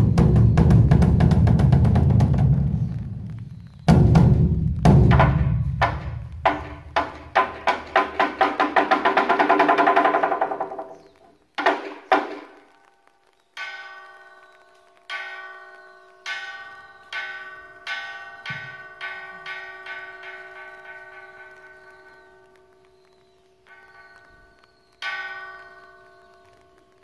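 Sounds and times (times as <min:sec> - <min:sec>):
temple drum beaten: 0:00.0 - 0:02.9, 0:03.9 - 0:12.8, 0:17.2 - 0:22.6.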